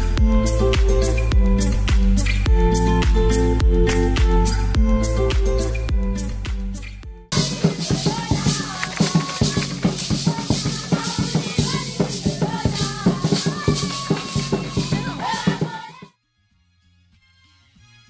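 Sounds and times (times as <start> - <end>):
ankle rattles shaking: 7.3 - 16.0
hand claps: 7.3 - 16.1
voices singing: 7.3 - 16.1.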